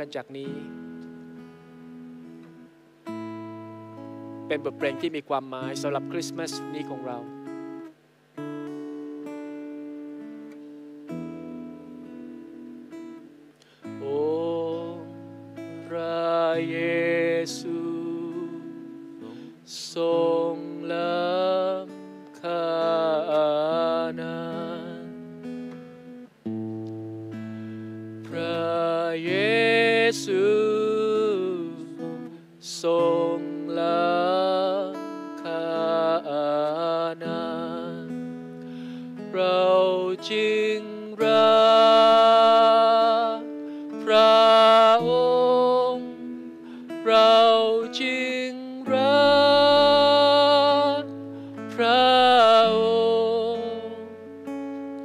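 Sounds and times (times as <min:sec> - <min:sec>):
man singing: 0:00.0 - 0:00.8, 0:04.5 - 0:07.4, 0:13.8 - 0:25.2, 0:28.2 - 0:38.3, 0:39.1 - 0:54.3
acoustic guitar: 0:00.0 - 0:55.0.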